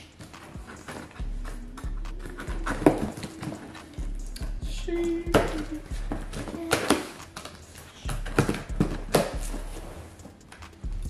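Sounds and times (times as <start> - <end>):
cardboard scraping and rustling: 0.0 - 4.0.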